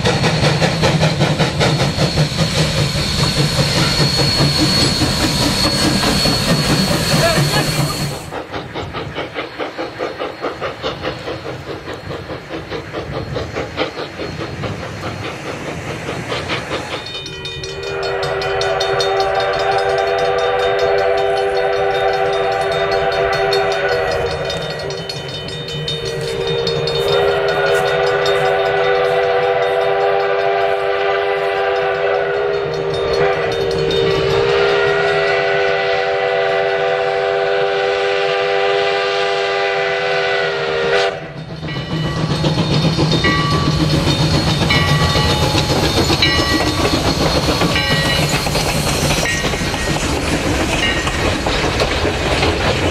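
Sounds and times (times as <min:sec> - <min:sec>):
steam locomotive rhythmic beat: 0:00.0 - 0:52.9
locomotive chime whistle blasts: 0:03.1 - 0:08.2, 0:17.3 - 0:41.4.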